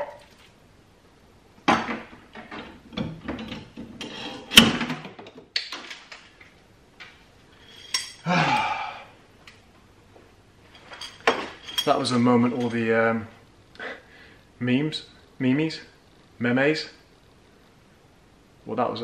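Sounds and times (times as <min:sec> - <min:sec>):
hand tools clanking on metal: 0:10.8 - 0:12.8.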